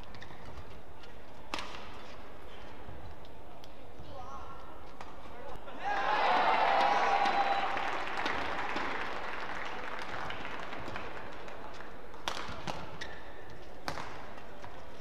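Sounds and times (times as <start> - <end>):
rackets hitting shuttlecock: 1.5 - 2.1, 12.1 - 15.0.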